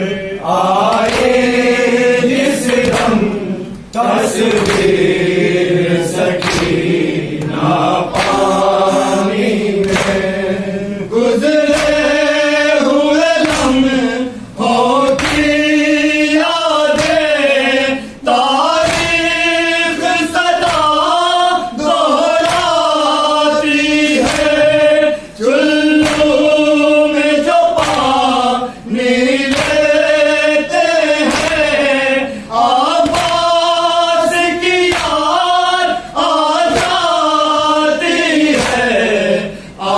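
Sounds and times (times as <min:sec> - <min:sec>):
men chanting a lament: 0:00.0 - 0:39.9
hands slapping on chests: 0:00.9 - 0:01.8, 0:02.6 - 0:05.2, 0:06.2 - 0:10.3, 0:11.7 - 0:12.1, 0:13.4 - 0:13.9, 0:15.1 - 0:15.6, 0:16.9 - 0:17.4, 0:18.8 - 0:19.3, 0:20.6 - 0:21.0, 0:22.4 - 0:22.9, 0:24.0 - 0:24.8, 0:26.0 - 0:26.5, 0:27.8 - 0:28.2, 0:29.4 - 0:30.0, 0:31.2 - 0:31.9, 0:33.0 - 0:33.6, 0:34.7 - 0:35.4, 0:36.7 - 0:37.2, 0:38.4 - 0:39.0.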